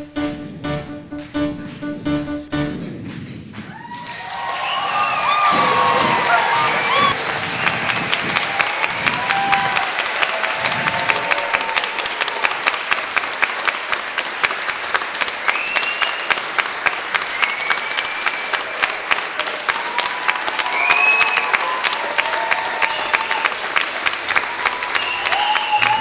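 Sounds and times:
audience applauding: 3.6s - 26.0s
high-pitched calls from crowd: 22.2s - 23.6s.

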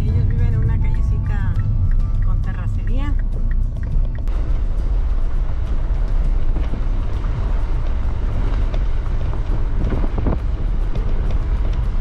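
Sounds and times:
vehicle rumble: 0.0s - 12.0s
wind noise on microphone: 0.0s - 12.0s.

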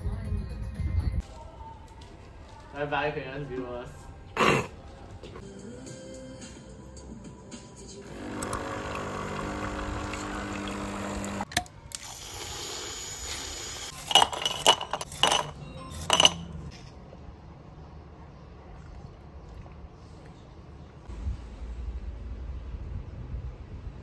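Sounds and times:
coffee machine pump humming: 8.0s - 13.9s
ice cubes clinking in glass: 13.9s - 16.5s.

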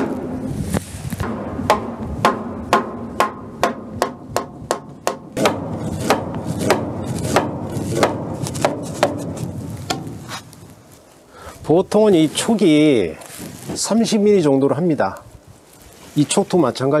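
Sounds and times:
hammer blows on timber: 1.2s - 10.1s.

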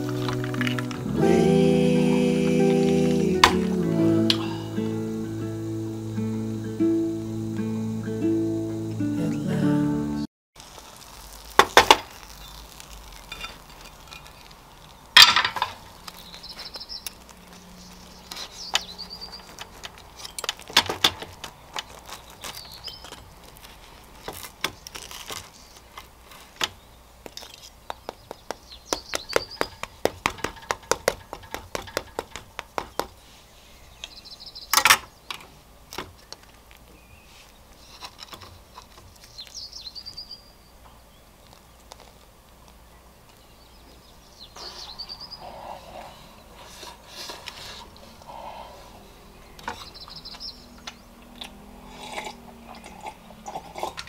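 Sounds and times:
birds chirping faintly: 12.1s - 53.9s
cutlery tapping on wood: 28.0s - 33.1s.

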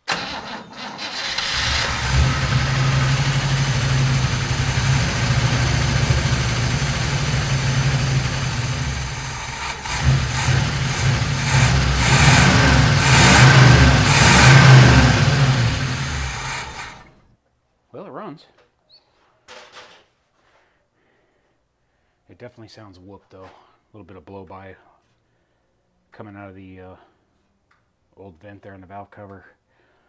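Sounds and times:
rough truck engine running: 1.6s - 17.2s.

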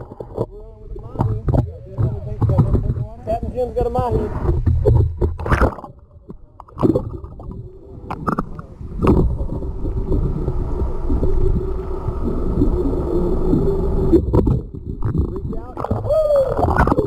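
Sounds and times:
underwater knocks: 0.0s - 3.2s, 4.1s - 10.4s, 14.1s - 17.0s
steady hum: 0.0s - 17.0s
underwater rush of water: 0.0s - 17.0s.

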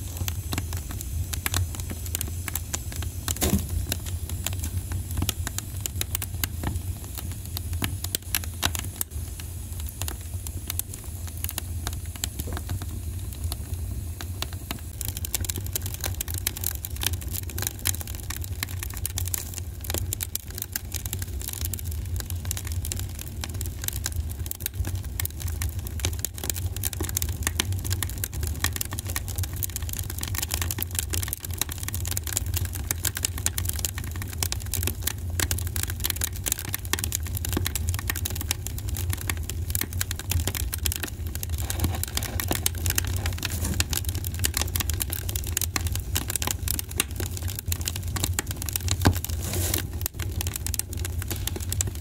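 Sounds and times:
dense crackling: 36.1s - 52.0s.

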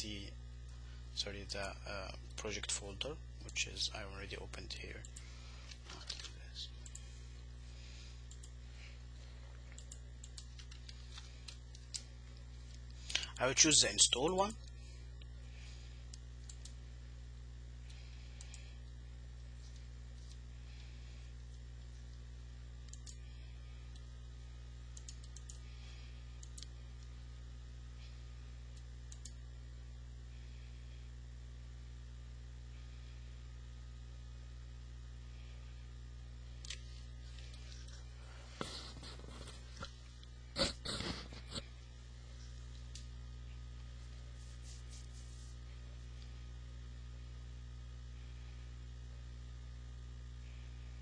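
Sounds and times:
low electrical hum: 0.0s - 51.0s
computer mouse clicking: 9.7s - 12.1s, 22.8s - 23.2s, 25.0s - 25.6s, 26.4s - 26.7s.

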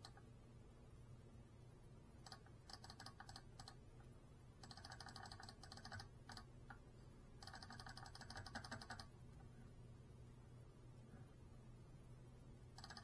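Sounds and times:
faint rapid clicking: 0.0s - 0.3s, 2.2s - 9.6s, 12.6s - 13.0s
steady low hum: 0.0s - 13.0s.

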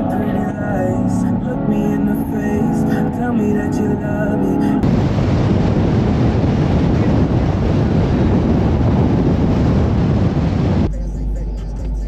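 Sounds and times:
road noise rumble: 0.0s - 12.0s
wind buffeting microphone: 4.8s - 11.0s.

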